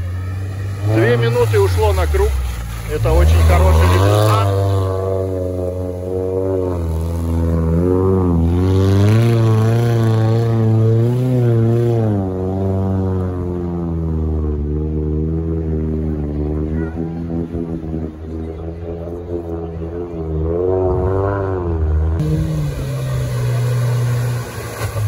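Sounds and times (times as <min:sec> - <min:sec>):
off-road vehicle engine running: 0:00.0 - 0:25.0.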